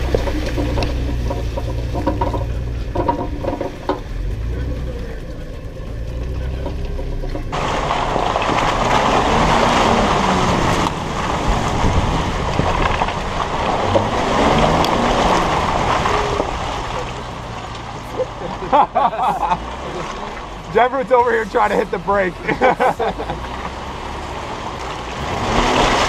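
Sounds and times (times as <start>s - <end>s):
car engine: 0.0s - 26.0s
tyres on dirt: 0.0s - 26.0s
wind noise on microphone: 9.6s - 16.4s.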